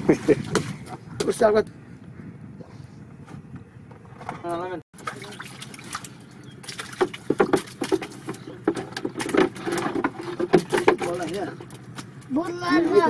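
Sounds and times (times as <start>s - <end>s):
water splashing and sloshing: 4.9s - 13.0s
slaps and knocks on wooden hull: 5.0s - 12.4s.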